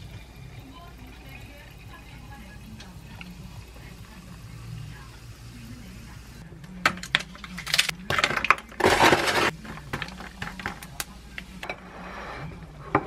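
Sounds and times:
ice cubes clinking in glass: 0:07.0 - 0:10.8.

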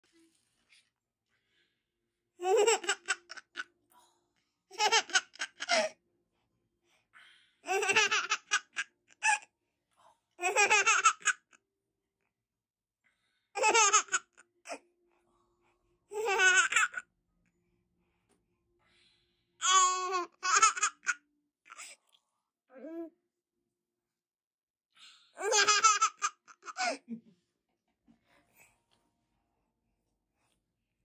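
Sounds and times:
baby laughing: 0:02.4 - 0:03.7, 0:04.7 - 0:06.0, 0:07.7 - 0:09.4, 0:10.4 - 0:11.6, 0:13.6 - 0:14.8, 0:16.1 - 0:17.0, 0:19.6 - 0:21.8, 0:25.4 - 0:27.1.

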